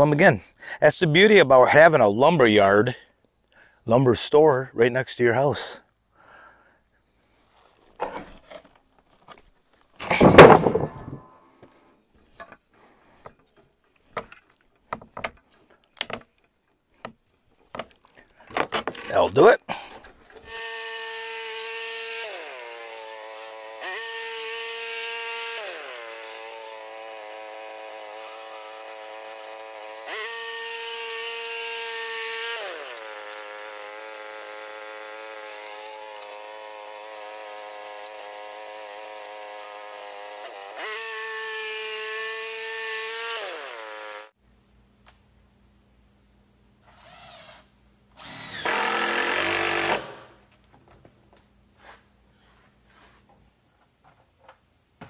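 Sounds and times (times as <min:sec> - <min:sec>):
cordless drill running: 0:20.4 - 0:44.3, 0:48.2 - 0:50.2
sawmill engine sawing: 0:20.4 - 0:44.4, 0:48.2 - 0:50.3.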